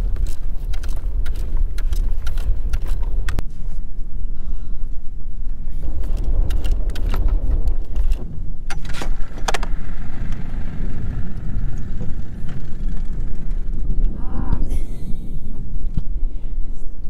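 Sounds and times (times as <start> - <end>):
outboard motor rumbling: 5.8 - 16.4.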